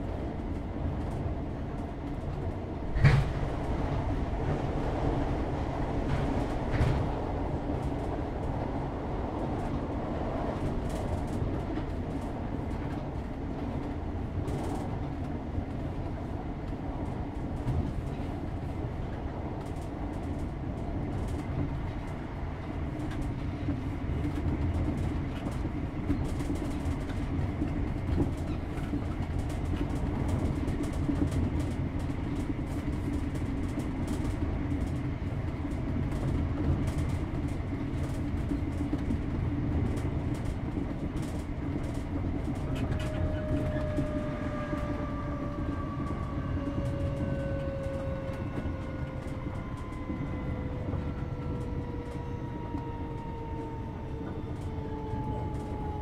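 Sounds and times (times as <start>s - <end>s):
train wheels rumbling on track: 0.0s - 56.0s.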